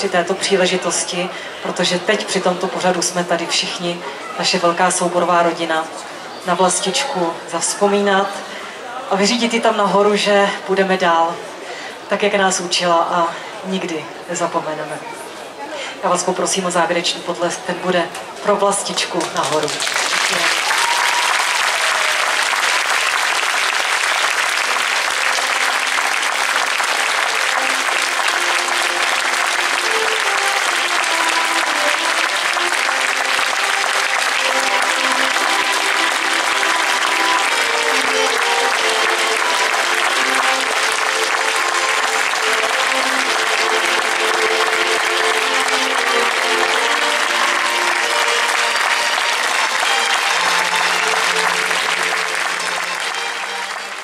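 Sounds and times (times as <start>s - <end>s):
audience applauding: 19.0s - 54.0s
instrumental tune: 23.3s - 54.0s.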